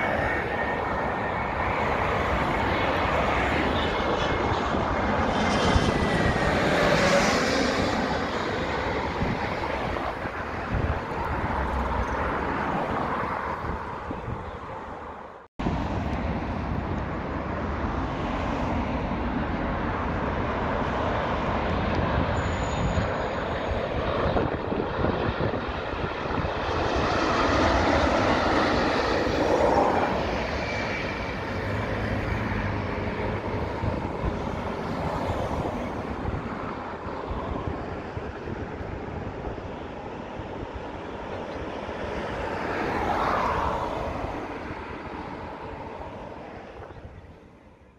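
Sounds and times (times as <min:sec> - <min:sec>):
jet airliner passing overhead: 0:00.0 - 0:47.9.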